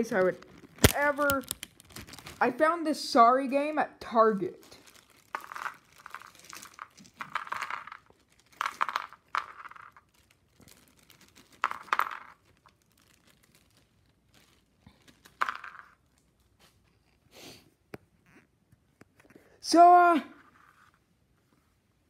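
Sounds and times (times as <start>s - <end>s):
plastic bag crinkling: 0.0s - 2.6s, 4.5s - 16.6s.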